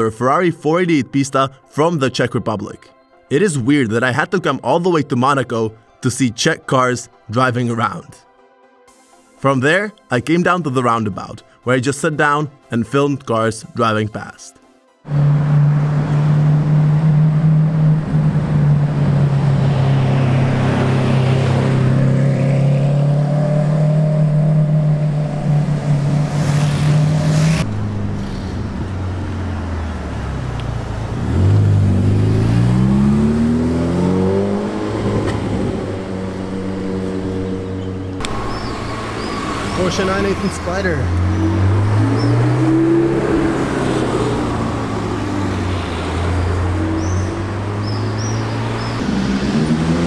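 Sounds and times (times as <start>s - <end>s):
car engine accelerating: 15.1s - 50.0s
car engine low note: 15.1s - 50.0s.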